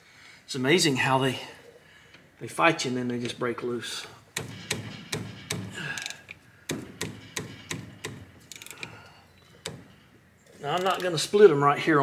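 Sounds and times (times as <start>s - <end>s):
ratchet wrench clicking: 5.9s - 6.3s, 7.2s - 8.9s.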